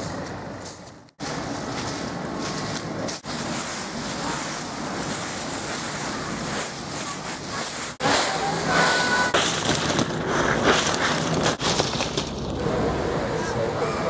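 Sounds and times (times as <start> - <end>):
boots shuffling through dry leaves: 1.2 - 11.8.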